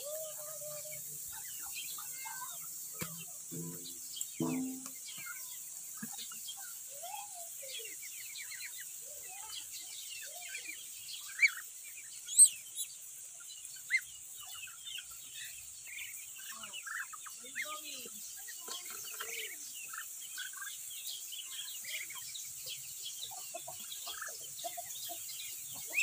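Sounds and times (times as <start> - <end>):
ducklings peeping: 7.8 - 26.0.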